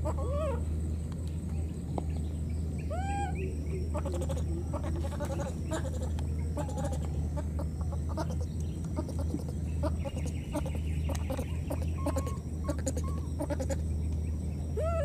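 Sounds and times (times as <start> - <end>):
rising and falling animal call: 0.0 - 0.7, 2.8 - 13.8, 14.7 - 15.0
steady low hum: 0.0 - 15.0
high animal squeaks: 4.0 - 13.8.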